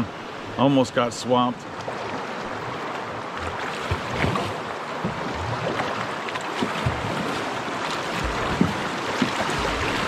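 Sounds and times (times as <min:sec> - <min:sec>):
river water splashing: 0:00.0 - 0:10.0
low thumps: 0:08.2 - 0:10.0.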